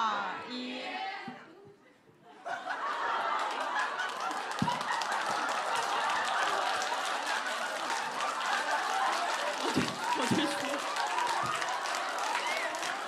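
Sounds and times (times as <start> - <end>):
people clapping: 2.8 - 13.0
women laughing and talking: 9.8 - 10.8.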